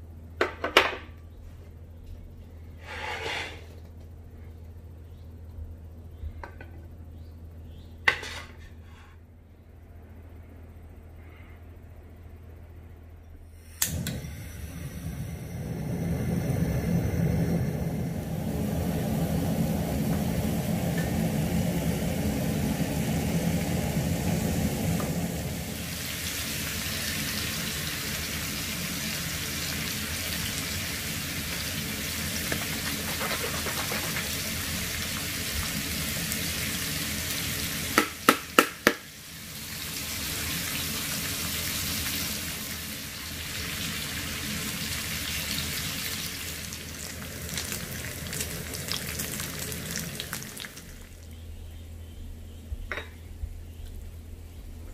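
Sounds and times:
low rough rushing noise: 14.6s - 25.9s
meat sizzling on a griddle: 25.8s - 51.1s.

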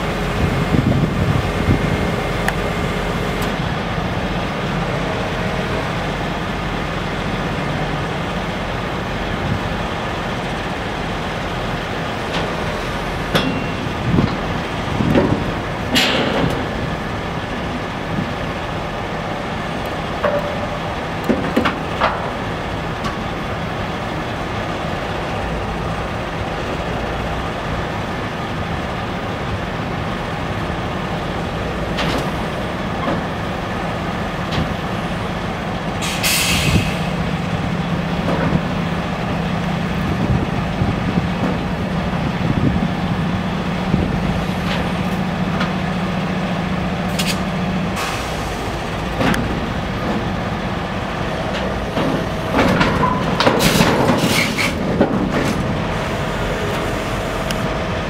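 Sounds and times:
diesel engine running: 0.0s - 58.0s
hydraulics humming: 0.0s - 58.0s
sharp hiss of air: 36.0s - 37.1s.

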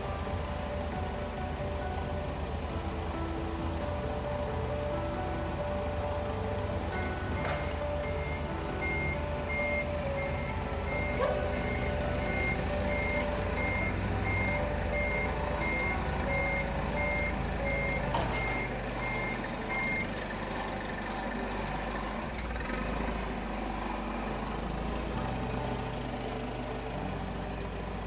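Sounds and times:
vehicle reversing alarm beeps: 7.4s - 20.2s, 27.4s - 27.9s.

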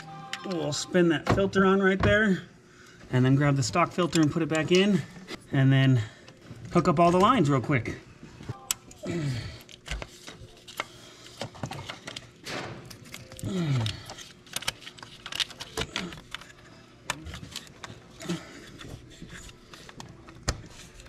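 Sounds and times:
tools clicking and clattering: 9.6s - 21.0s.

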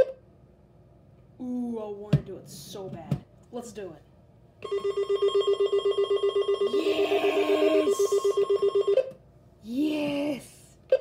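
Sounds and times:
person's excited voice: 6.7s - 8.3s, 9.6s - 10.7s
rapid electronic alarm beeps: 7.8s - 9.1s.

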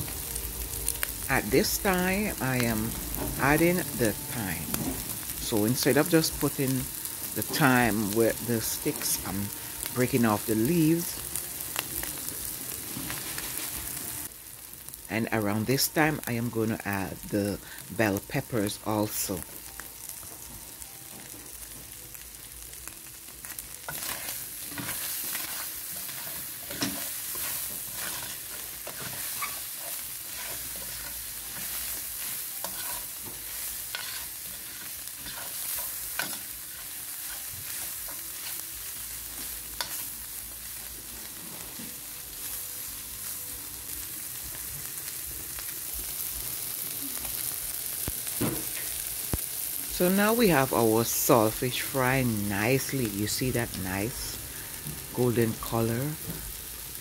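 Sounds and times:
food sizzling in oil: 0.0s - 57.0s
utensil scraping a pan: 23.9s - 32.0s, 32.6s - 37.4s.

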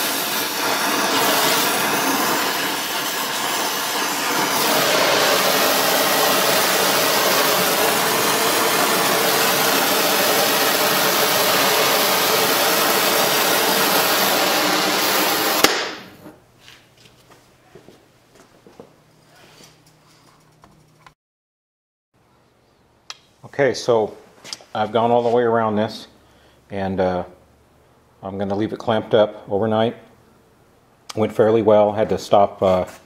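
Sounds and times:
gas torch flame hissing: 0.0s - 16.4s.

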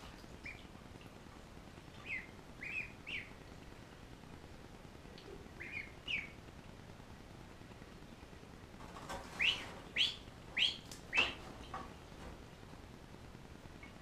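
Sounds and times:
ducklings peeping: 0.3s - 0.8s, 1.9s - 3.5s, 5.2s - 6.4s, 8.9s - 12.0s.

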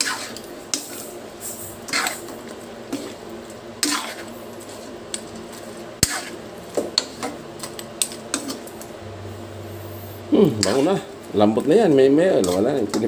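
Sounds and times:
spoon stirring food in metal wok: 0.0s - 8.9s.

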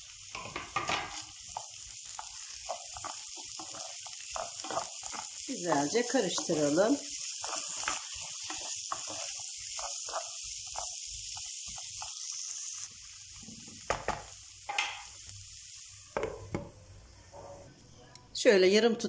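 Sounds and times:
potatoes sizzling in oil: 0.0s - 17.7s
wooden spoon scraping a pan: 0.3s - 11.0s.

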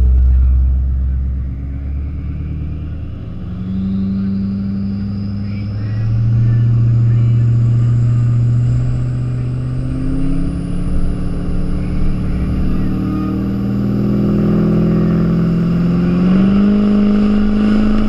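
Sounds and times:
diesel engine revving: 0.0s - 18.0s
turbocharger whistle: 1.3s - 18.0s.

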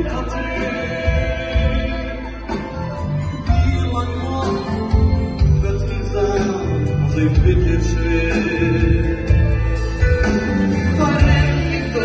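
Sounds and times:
men singing into microphones: 0.0s - 2.8s, 5.4s - 9.6s, 10.7s - 12.0s
amplified band with heavy bass: 0.0s - 12.0s.

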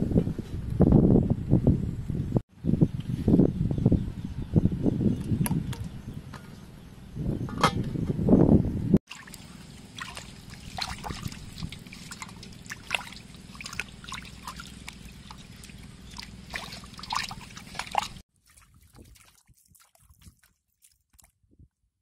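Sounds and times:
low steady hum: 6.1s - 18.2s
water splashing in metal basin: 9.1s - 21.3s.

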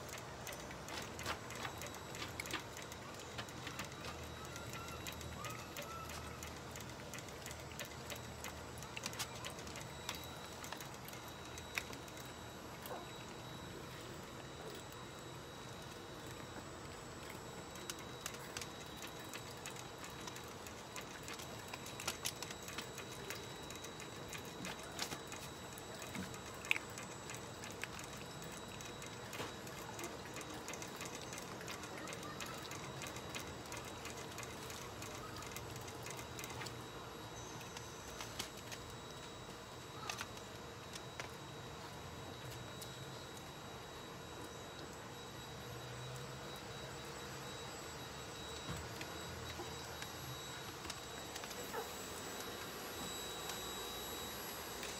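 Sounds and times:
dog crunching dry kibble: 0.0s - 13.6s, 17.2s - 39.3s, 40.0s - 41.4s.

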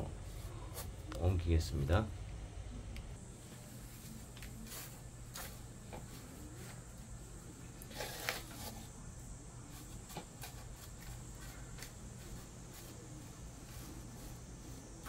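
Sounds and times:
scoop scraping potting mix: 7.8s - 8.9s.

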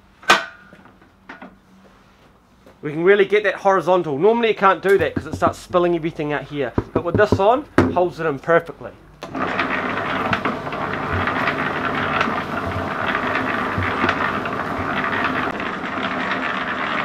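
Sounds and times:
concrete mixer running: 4.9s - 7.6s, 9.2s - 17.0s.

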